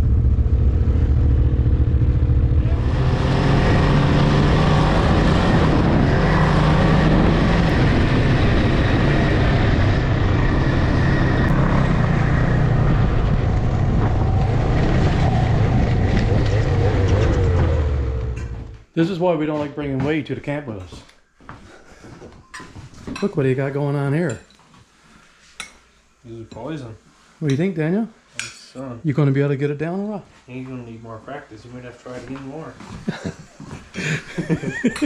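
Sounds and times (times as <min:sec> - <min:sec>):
snowmobile engine running: 0:00.0 - 0:18.4.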